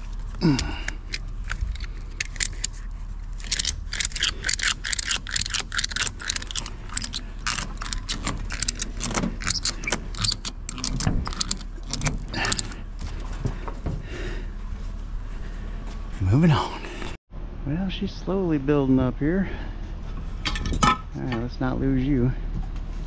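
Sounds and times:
metallic rattling and jangling: 0.0s - 12.9s
vehicle driving hum: 0.0s - 23.0s.

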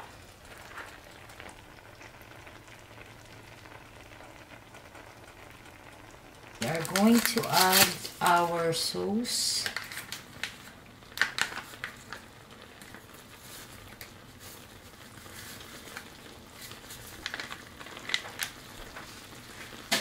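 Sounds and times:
paper pouch crinkling: 6.6s - 8.5s, 9.6s - 19.9s.

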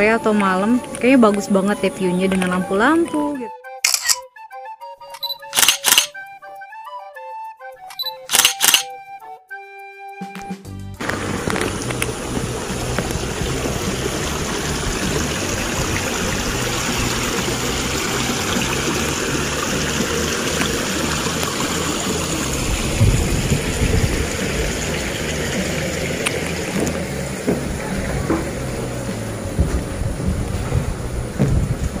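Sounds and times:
waterfall splashing into pond: 11.0s - 32.0s
low bump: 22.4s - 25.3s, 26.4s - 32.0s.

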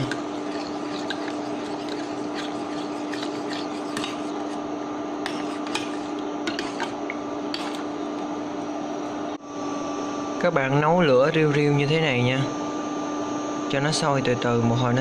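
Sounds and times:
metal spoon scraping a pot: 0.0s - 4.6s, 5.2s - 7.9s
cooktop hum: 0.0s - 13.3s.

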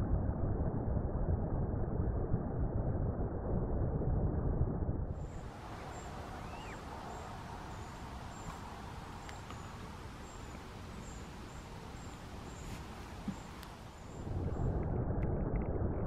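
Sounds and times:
faint outdoor hush: 5.2s - 14.3s
rising and falling bird call: 5.4s - 14.2s.

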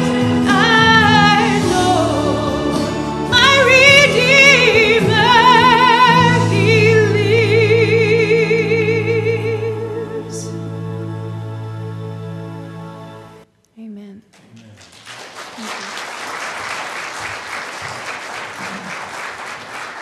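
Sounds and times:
woman singing with vibrato: 0.0s - 10.6s
musical accompaniment: 0.0s - 13.4s.

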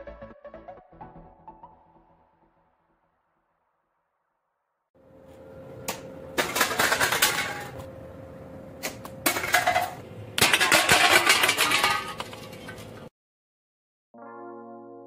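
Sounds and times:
drink cans clattering on tile floor: 6.4s - 7.8s, 9.3s - 12.8s.

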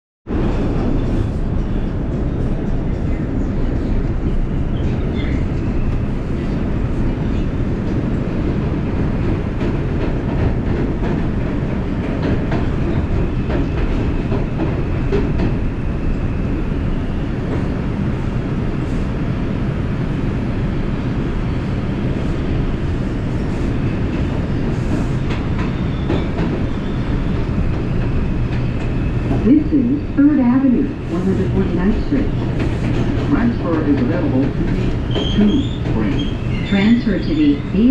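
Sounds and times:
subway train wheels rumbling: 0.3s - 37.9s
clacks over rail joints: 9.2s - 15.6s, 24.1s - 29.4s, 32.3s - 36.6s.

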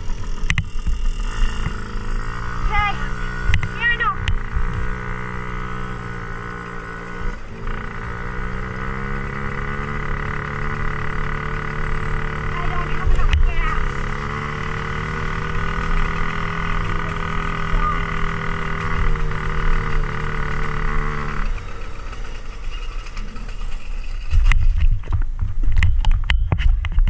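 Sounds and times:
low rumble: 0.0s - 20.1s
dirt bike engine running: 0.0s - 27.0s.

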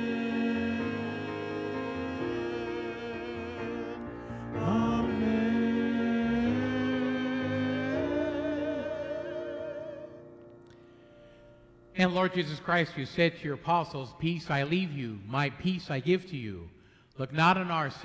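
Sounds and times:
man and woman singing: 0.0s - 10.2s
piano: 0.0s - 15.2s.

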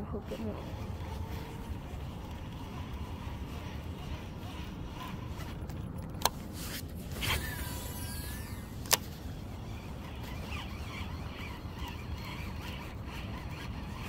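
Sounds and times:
scraping rustle: 0.0s - 14.0s
steady low rumble: 0.0s - 14.0s
fishing reel clicks: 9.6s - 14.0s.

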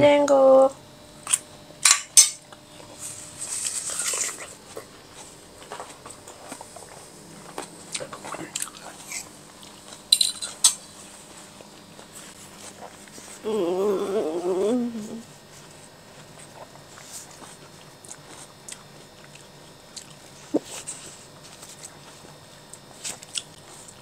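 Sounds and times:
person chewing: 3.5s - 13.4s, 16.2s - 24.0s.

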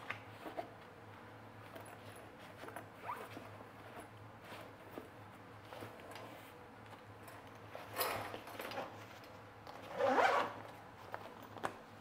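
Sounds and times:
zipper pull: 1.8s - 5.0s, 9.8s - 10.8s.

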